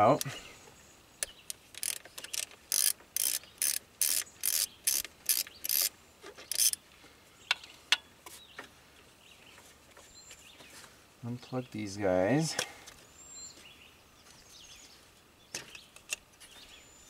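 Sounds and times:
socket ratchet clicking: 0:01.2 - 0:05.9, 0:06.5 - 0:06.8.

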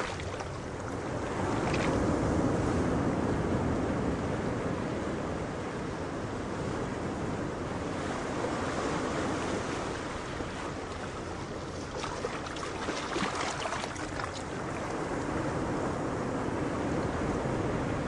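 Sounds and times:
light crackling splashes: 0:00.0 - 0:01.0, 0:10.8 - 0:15.2
ocean waves: 0:00.0 - 0:18.0
wind: 0:00.0 - 0:18.0.

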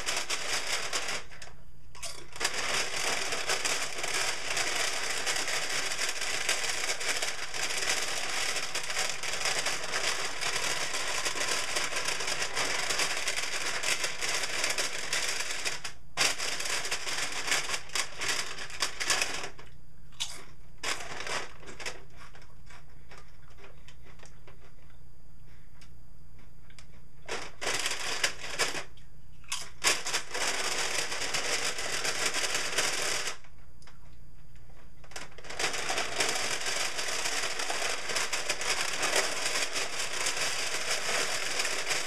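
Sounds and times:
plastic chip bag crinkling: 0:00.0 - 0:19.6.

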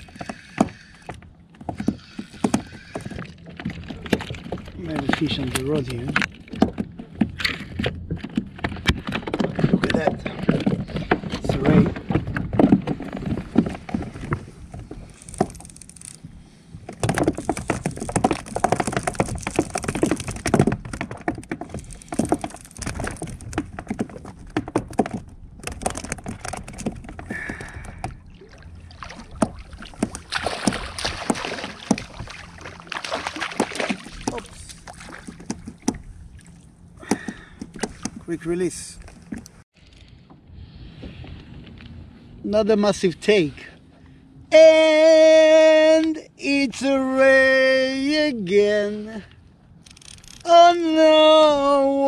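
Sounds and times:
knocks and clicks on kayak: 0:16.8 - 0:28.2, 0:33.0 - 0:38.3
water splashing: 0:25.7 - 0:39.6.

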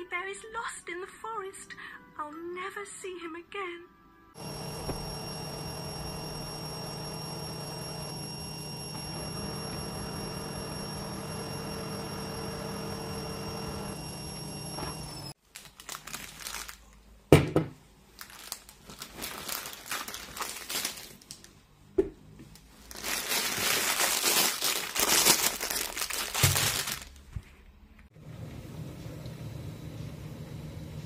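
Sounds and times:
steady hum: 0:04.4 - 0:15.4
plastic packaging crinkling: 0:15.4 - 0:17.1, 0:18.1 - 0:21.6, 0:22.6 - 0:27.6
items knocking on table: 0:17.3 - 0:17.8.

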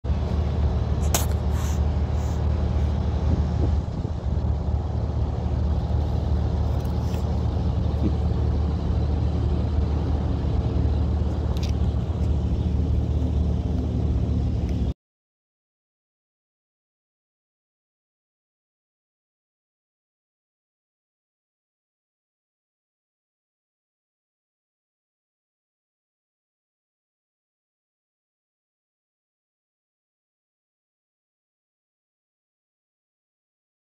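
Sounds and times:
engine idling: 0:00.0 - 0:15.0.

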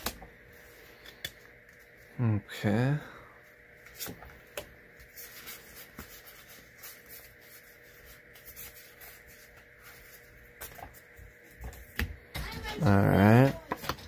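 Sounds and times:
faint steady hum: 0:00.0 - 0:14.0
cards clicking and rustling: 0:03.8 - 0:14.0.

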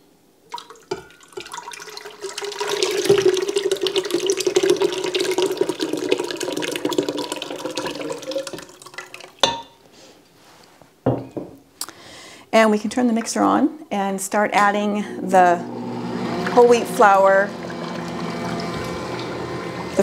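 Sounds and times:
liquid pouring into a metal bowl: 0:00.5 - 0:09.4, 0:17.5 - 0:20.0.

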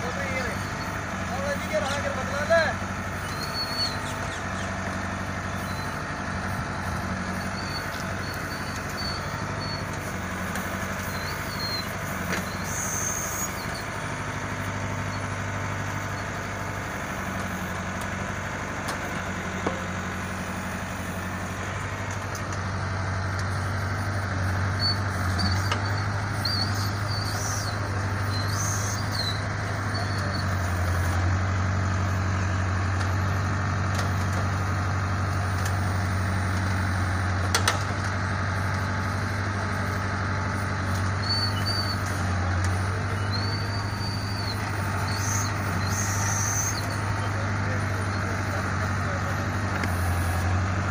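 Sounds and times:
diesel engine running: 0:00.0 - 0:50.9
short high squeaks: 0:03.2 - 0:04.8, 0:05.5 - 0:06.1, 0:06.7 - 0:14.2, 0:22.4 - 0:31.2, 0:40.6 - 0:48.4.

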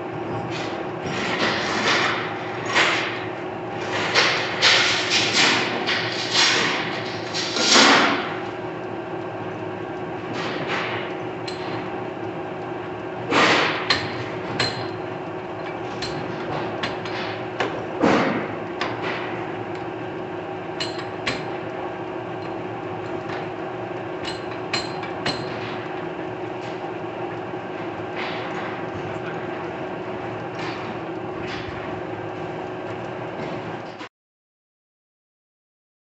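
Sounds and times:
lathe gear hum: 0:06.9 - 0:34.0.

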